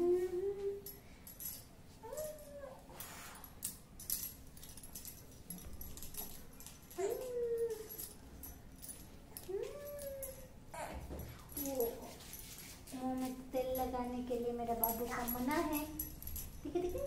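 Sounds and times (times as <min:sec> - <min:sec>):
baby whimpering: 0:07.0 - 0:08.0, 0:09.5 - 0:11.1.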